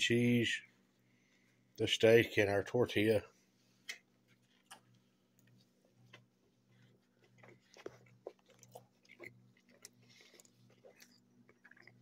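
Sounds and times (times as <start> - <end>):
faint low hum: 0.0 - 12.0
person biting and chewing: 7.2 - 12.0.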